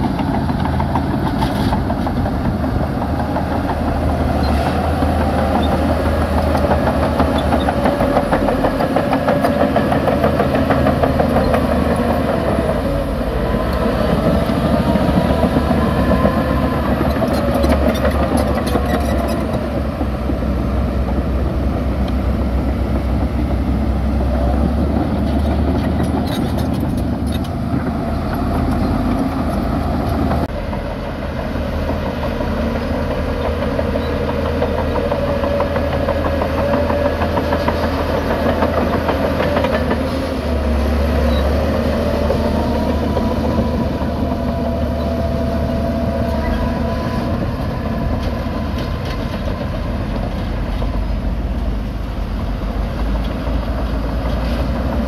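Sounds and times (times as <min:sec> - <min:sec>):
bulldozer diesel engine rumbling: 0:00.0 - 0:55.0
steel tracks clattering: 0:00.0 - 0:55.0.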